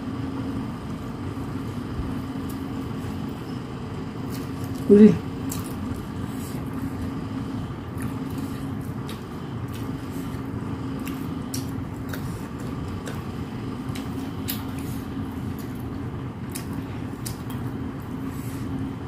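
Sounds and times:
steady machine hum: 0.0s - 19.0s
chewing and lip smacks: 4.2s - 7.2s, 7.8s - 18.2s.

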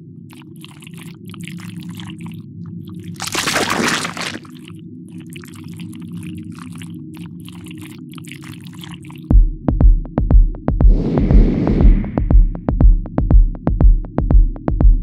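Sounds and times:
wet squelching crackling effects: 0.3s - 9.3s.

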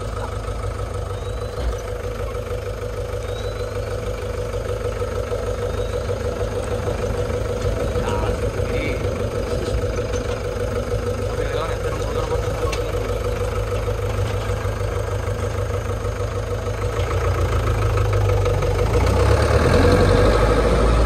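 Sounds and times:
truck engine rumbling: 0.0s - 21.0s.

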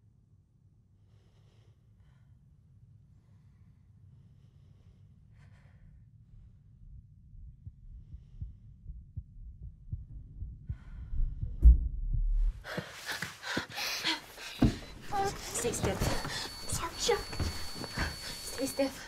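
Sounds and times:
low rumble with deep pulses: 6.2s - 12.7s
heavy low hit: 10.4s - 12.6s.

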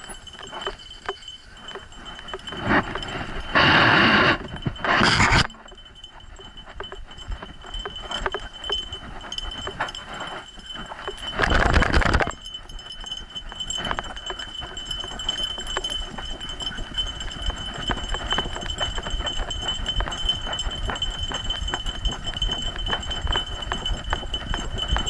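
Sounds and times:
rubbing and knocking on camera: 2.6s - 5.6s, 11.4s - 12.4s.

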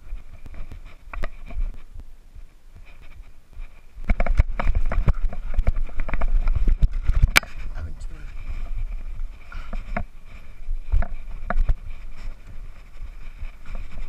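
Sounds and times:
bike rattling over stones: 3.0s - 14.0s.

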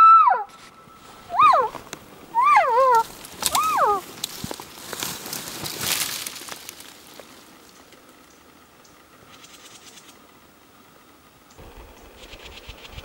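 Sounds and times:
brush and leaves rustling: 0.3s - 10.3s
patter of small ticks: 2.8s - 10.3s.

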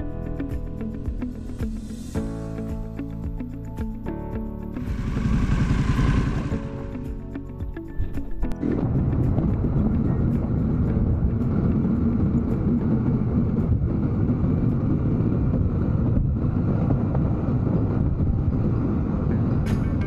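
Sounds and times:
wind and road noise: 0.0s - 20.0s
motorcycle engine running: 4.8s - 7.8s.

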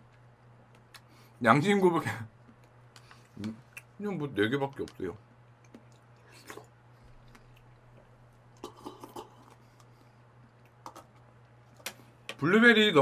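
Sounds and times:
man chewing food: 2.4s - 4.0s, 5.3s - 12.1s.

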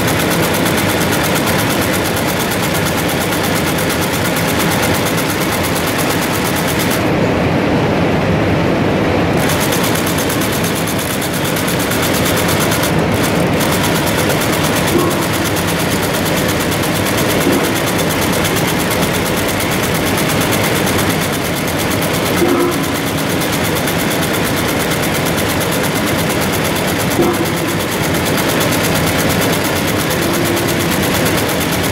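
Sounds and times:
knotting machine clattering: 9.4s - 31.9s.

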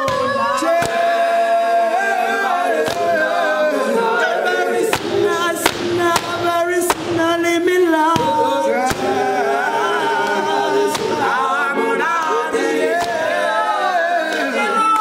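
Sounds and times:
male group singing in harmony: 0.0s - 15.0s
sharp hand claps: 2.8s - 3.1s, 4.9s - 7.2s, 12.9s - 13.2s, 14.2s - 15.0s.

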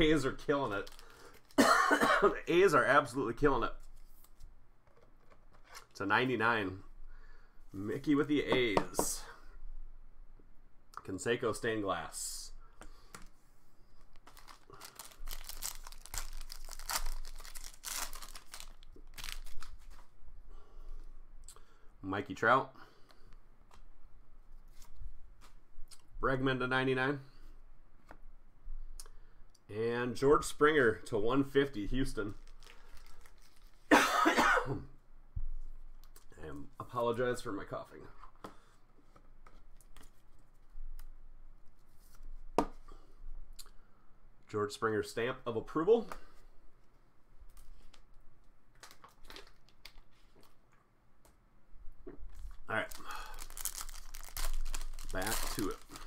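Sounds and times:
foil wrapper crinkling: 0.8s - 1.6s, 14.2s - 20.1s, 32.4s - 33.9s, 52.3s - 56.0s.

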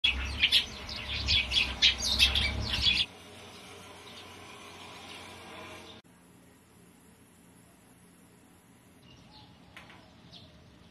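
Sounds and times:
sparrow chirping: 0.0s - 4.4s, 9.0s - 10.9s.

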